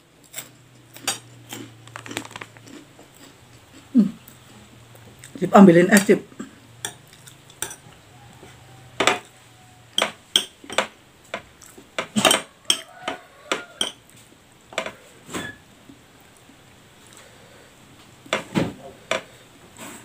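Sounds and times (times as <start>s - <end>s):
metal spoon clinking on ceramic plate: 7.6s - 7.8s, 10.0s - 10.9s, 12.2s - 13.2s, 13.8s - 14.0s.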